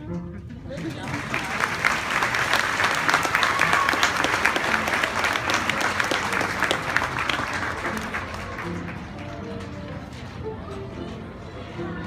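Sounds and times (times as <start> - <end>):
audience applauding: 0.7 - 10.2.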